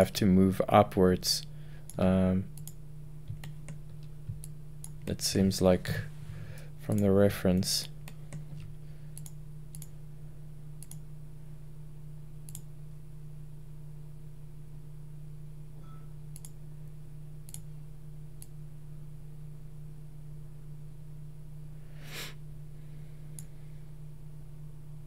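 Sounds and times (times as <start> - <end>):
low electrical hum: 0.0 - 25.0
computer mouse clicks: 2.6 - 5.0, 8.0 - 9.9, 10.8 - 11.0, 12.5 - 12.7, 16.3 - 16.6, 17.5 - 17.7.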